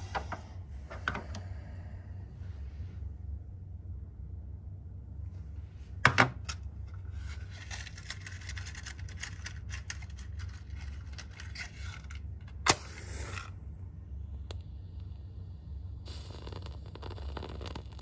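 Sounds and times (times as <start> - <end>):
matches rattling in matchbox: 7.2 - 12.2
match struck flaring: 12.6 - 13.5.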